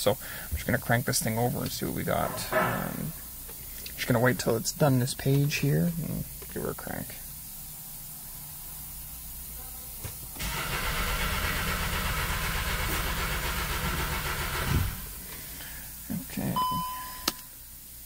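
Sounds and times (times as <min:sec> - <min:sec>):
car engine cranking: 0:10.4 - 0:15.2
short beep: 0:16.6 - 0:17.4.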